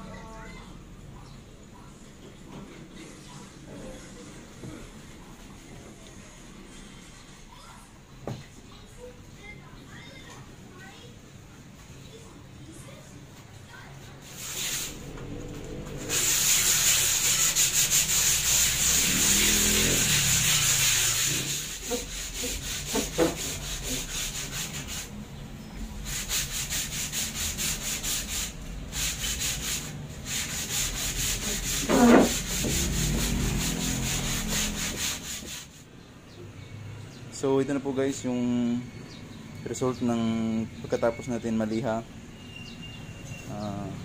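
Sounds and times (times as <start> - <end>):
sandpaper rubbing on wood: 14.2 - 15.1, 15.9 - 25.1, 26.0 - 35.8.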